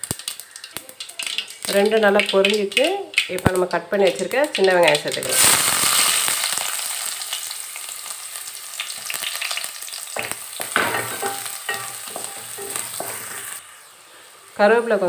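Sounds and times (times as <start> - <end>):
shallots sizzling in oil: 0.0 - 15.0
wooden spatula scraping pan: 10.2 - 13.6.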